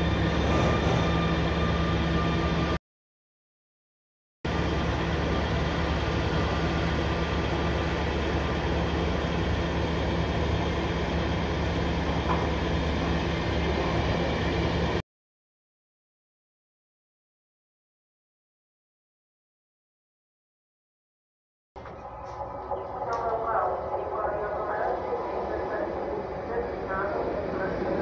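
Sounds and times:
train wheels rumbling on rail: 0.0s - 2.8s, 4.5s - 15.0s
low hum: 21.8s - 28.0s.

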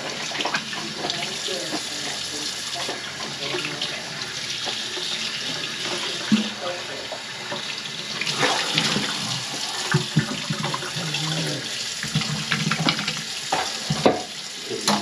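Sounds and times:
faucet running into sink: 0.0s - 15.0s.

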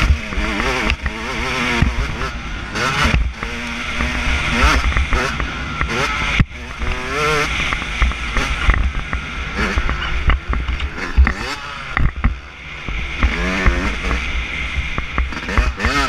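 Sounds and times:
dirt bike engine revving: 0.0s - 16.0s.

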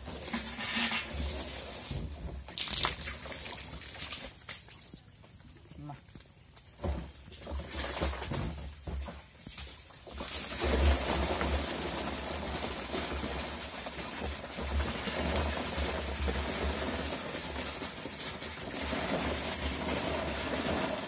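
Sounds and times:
fish pouring into plastic drum: 0.0s - 4.4s, 9.9s - 21.0s.

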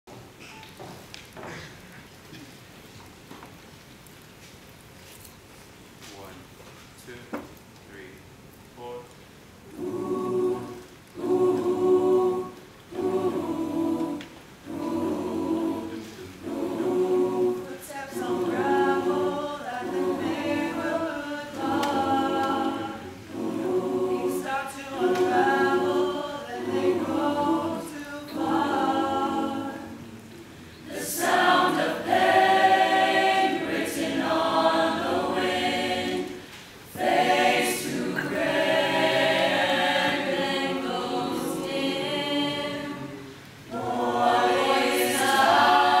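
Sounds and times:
choir singing in harmony: 9.6s - 46.0s.

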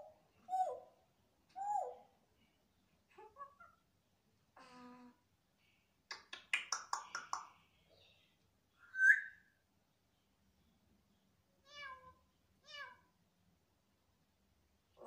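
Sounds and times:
parrot loud high whistle: 8.9s - 9.4s.

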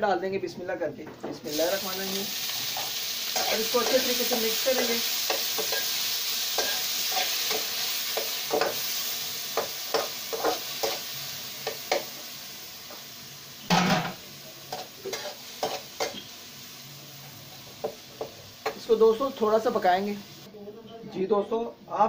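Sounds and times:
tomatoes sizzling in hot fat: 1.4s - 20.5s
metal spoon scraping a pan: 2.4s - 8.9s, 9.6s - 12.1s, 14.7s - 16.3s.

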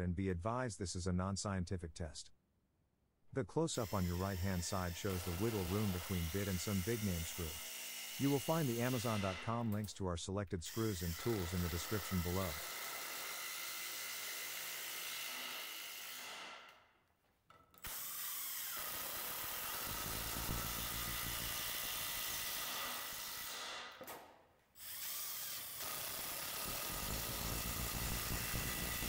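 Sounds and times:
impact driver driving screws into wood: 11.2s - 16.8s, 17.8s - 24.2s.

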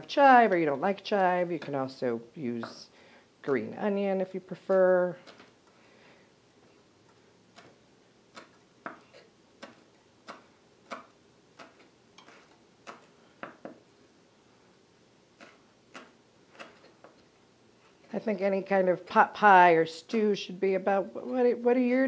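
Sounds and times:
knife chopping on wooden board: 7.5s - 13.8s.

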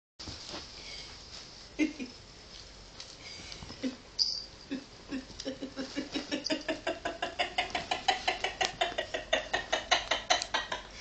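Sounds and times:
person laughing: 1.8s - 2.1s, 4.7s - 11.0s.

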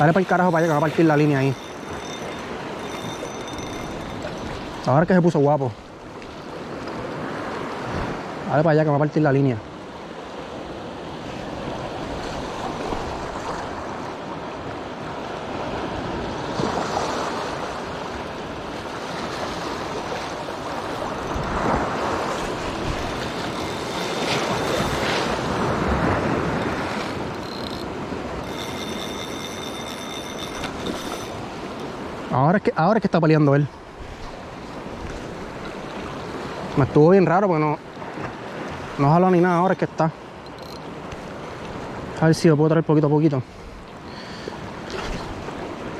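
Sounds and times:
fishing reel drag buzzing: 0.0s - 4.9s, 19.6s - 32.2s, 39.3s - 39.8s, 40.4s - 41.7s
wind on microphone: 15.6s - 32.2s.

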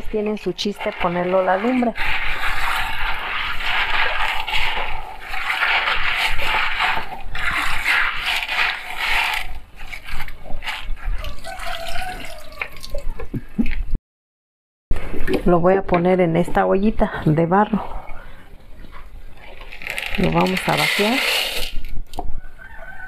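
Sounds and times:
water running and splashing: 0.0s - 13.2s.

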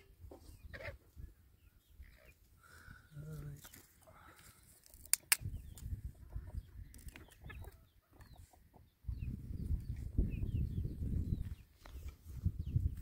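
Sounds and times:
birds chirping: 0.0s - 13.0s
sharp clicks: 4.9s - 5.9s
wind rumble on microphone: 5.4s - 7.8s, 9.0s - 13.0s.

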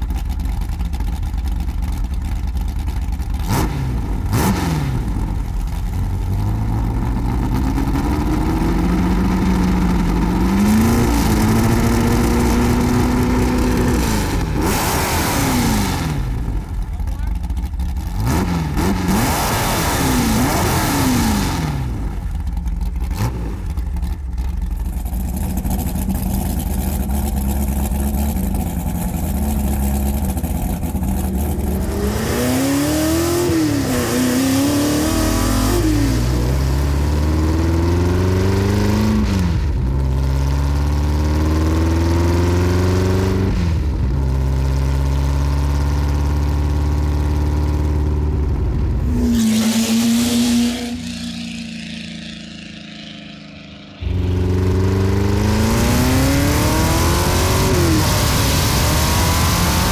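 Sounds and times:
loud car exhaust revving: 3.2s - 59.9s.

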